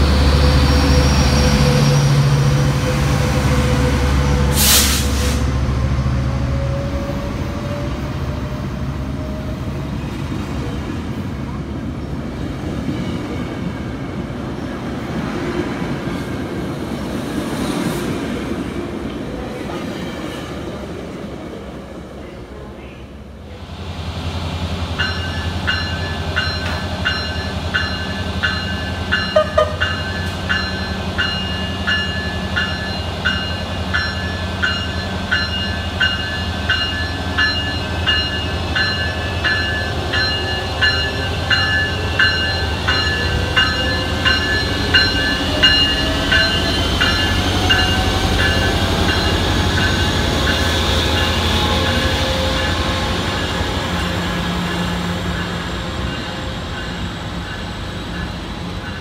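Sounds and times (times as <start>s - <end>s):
diesel locomotive running: 23.2s - 59.0s
locomotive bell ringing: 25.0s - 53.5s, 54.7s - 59.0s.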